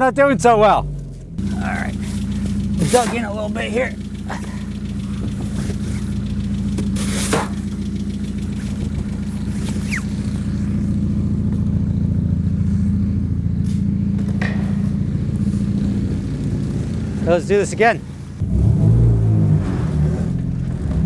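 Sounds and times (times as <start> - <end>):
car engine idling: 0.0 - 21.0
snow shovel scraping snow: 2.0 - 3.4, 6.9 - 7.6.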